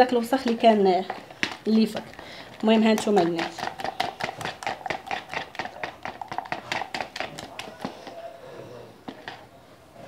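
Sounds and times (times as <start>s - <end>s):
spoon tapping plastic tub: 0.4s - 8.2s.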